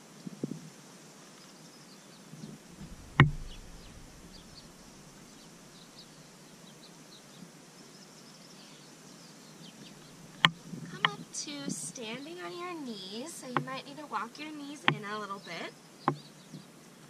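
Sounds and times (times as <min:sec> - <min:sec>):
faint bird chirps: 0:01.4 - 0:13.9
soft knocks: 0:02.8 - 0:05.8.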